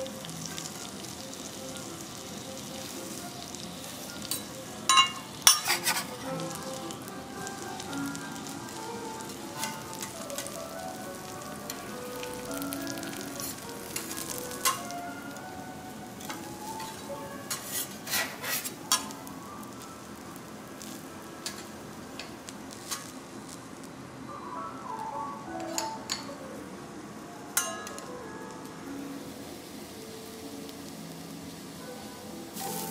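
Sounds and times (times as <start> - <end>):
food sizzling on a griddle: 0.0 - 32.9
metal utensils clicking on hot plate: 4.1 - 6.9, 9.3 - 10.6, 11.7 - 15.0, 16.2 - 19.2, 20.8 - 23.1, 25.6 - 26.3, 27.6 - 28.1.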